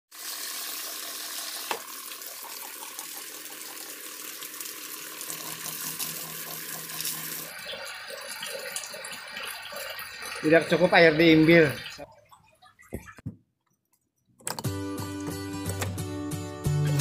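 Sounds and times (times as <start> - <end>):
water spraying into a tub: 0.1 - 12.1.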